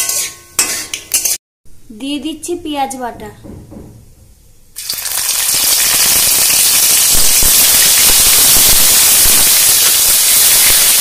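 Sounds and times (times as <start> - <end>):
spatula stirring in wok: 0.0 - 1.4
onion paste sizzling in oil: 4.8 - 11.0.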